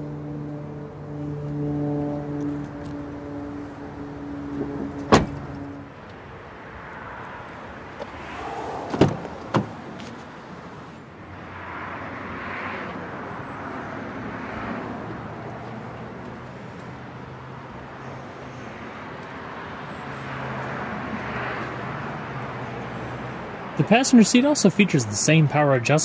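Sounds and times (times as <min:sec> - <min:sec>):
car door slamming: 0:04.7 - 0:05.7, 0:08.0 - 0:10.2
car door latch clicks: 0:05.0 - 0:05.6, 0:08.9 - 0:10.1.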